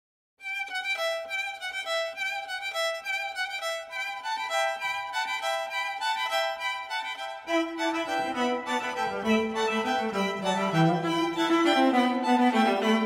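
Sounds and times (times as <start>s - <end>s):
violin melody: 0.4s - 13.0s.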